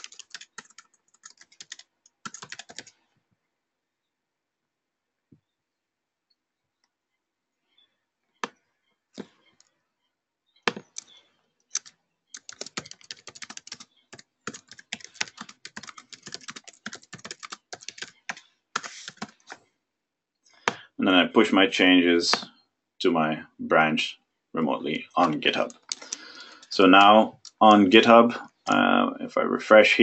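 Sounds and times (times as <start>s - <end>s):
typing on a computer keyboard: 0.0s - 3.0s, 10.7s - 19.6s.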